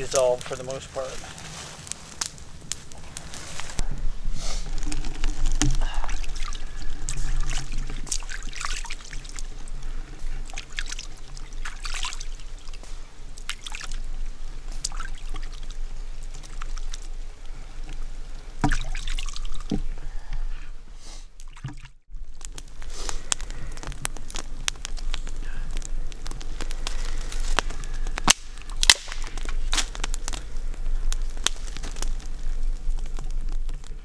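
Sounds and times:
creek water trickling: 4.6s - 20.2s, 21.4s - 27.9s.

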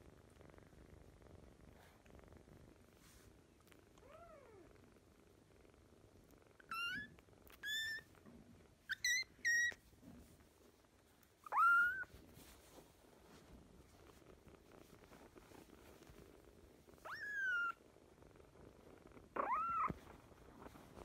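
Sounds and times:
kitten mewing: 11.4s - 12.1s.

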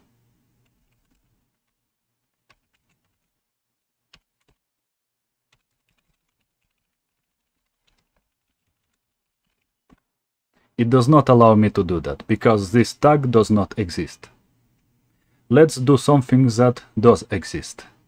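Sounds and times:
keystrokes on computer keyboard: 0.6s - 3.3s, 4.1s - 4.6s, 5.5s - 10.0s.

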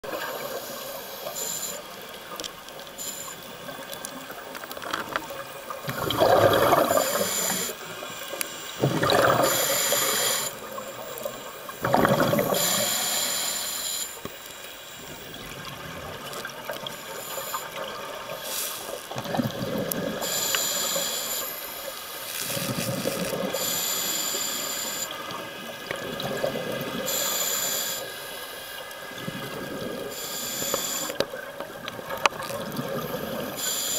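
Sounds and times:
exhaled air bubbling underwater: 0.0s - 14.4s, 15.0s - 21.9s, 22.5s - 33.9s
regulator hissing inhalations: 0.2s - 2.1s, 2.8s - 3.7s, 5.9s - 11.7s, 12.4s - 15.1s, 16.9s - 19.0s, 20.2s - 25.3s, 27.0s - 28.8s, 30.1s - 31.2s, 33.0s - 33.9s.

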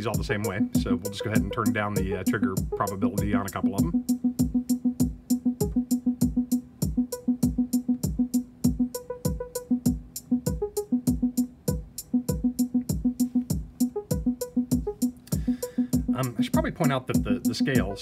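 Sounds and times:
kick drum thumps: 0.2s - 17.9s
crisp synth ticks: 2.5s - 15.4s.

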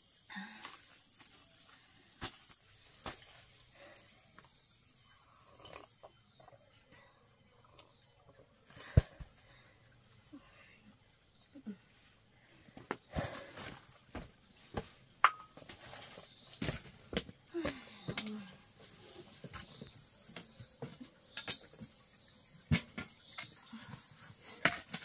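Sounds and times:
faint insect chirping: 0.0s - 25.0s
insects droning: 0.0s - 25.0s.

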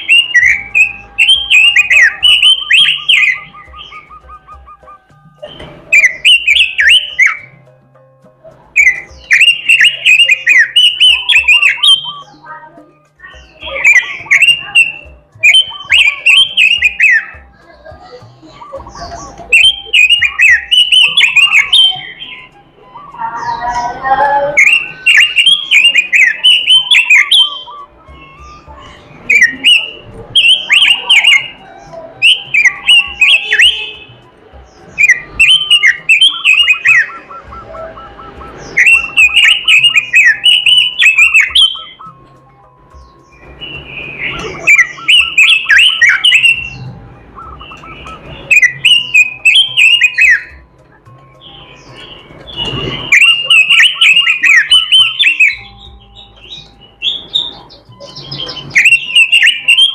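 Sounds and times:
bird warbling chirps: 0.0s - 7.6s, 8.8s - 17.6s, 18.2s - 50.6s, 51.2s - 59.9s.

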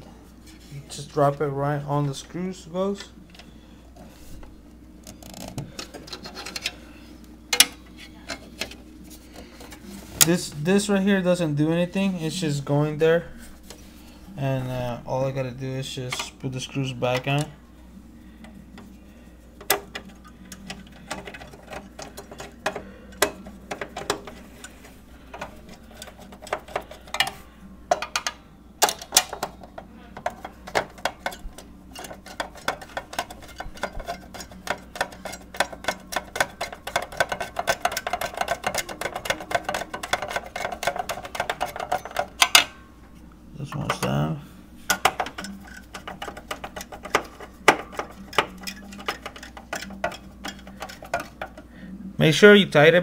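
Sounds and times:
metal clicks and knocks: 25.3s - 42.7s, 44.9s - 51.6s.

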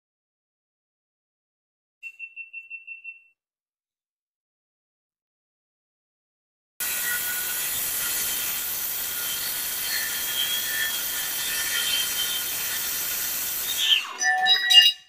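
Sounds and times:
circular saw cutting metal sheet: 6.8s - 14.7s.

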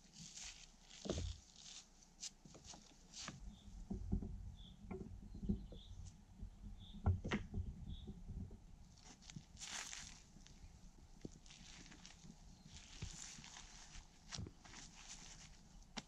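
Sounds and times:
footsteps: 9.0s - 10.6s, 11.2s - 16.0s.

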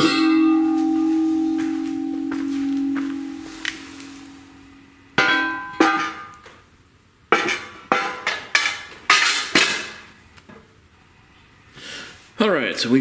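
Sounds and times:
sharp metallic knocks: 0.0s - 6.3s, 7.3s - 10.0s.

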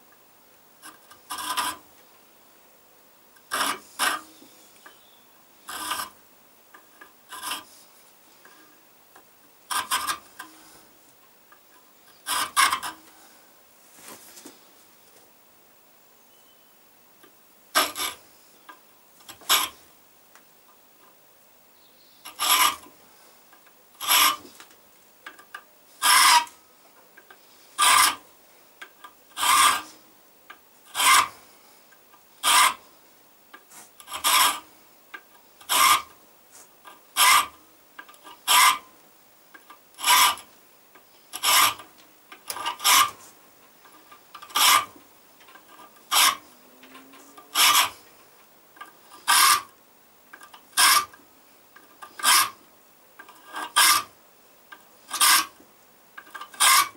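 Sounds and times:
hand file rasping on steel: 3.5s - 4.3s, 7.3s - 7.7s, 22.3s - 22.8s, 24.0s - 24.4s, 26.0s - 26.5s, 27.8s - 28.2s, 29.4s - 30.0s, 30.9s - 31.4s, 32.4s - 32.8s, 33.8s - 34.6s, 35.7s - 36.1s, 37.2s - 37.5s, 38.5s - 38.8s, 42.5s - 43.2s, 44.5s - 44.9s, 46.1s - 46.4s, 47.5s - 48.0s, 49.1s - 49.7s, 50.8s - 51.1s, 52.1s - 52.6s, 53.4s - 54.1s, 55.1s - 55.5s, 56.5s - 56.9s.

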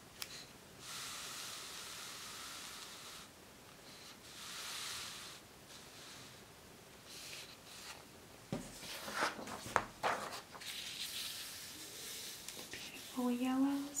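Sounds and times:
paper rustling: 8.6s - 13.4s.

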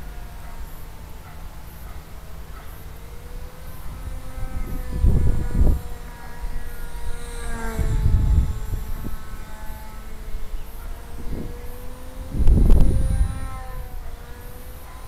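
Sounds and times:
model plane motor humming: 0.0s - 15.0s
wind rumble on microphone: 3.0s - 15.0s.

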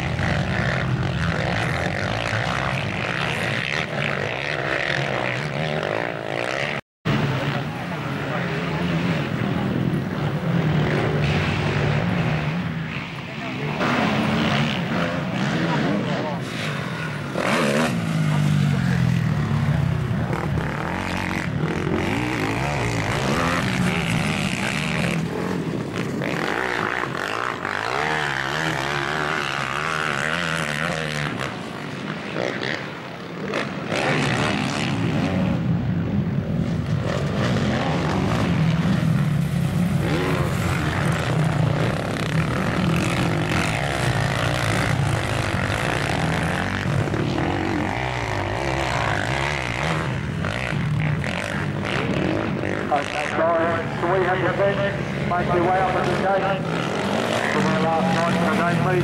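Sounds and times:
quad bike engines revving: 0.0s - 59.0s.

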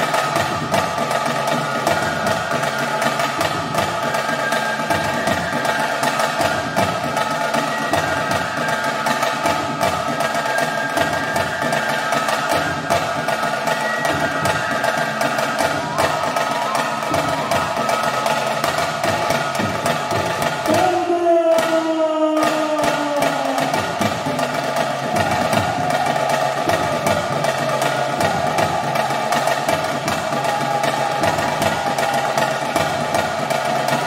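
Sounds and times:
fast drumming on barrel drums: 0.0s - 34.0s
held flute notes: 0.0s - 34.0s.

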